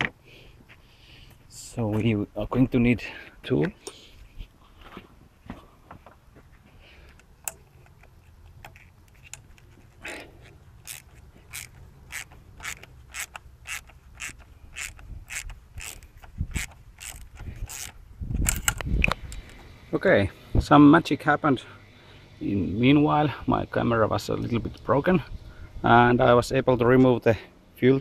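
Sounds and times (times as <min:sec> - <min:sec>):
ratchet wrench clicking: 0:07.2 - 0:19.6.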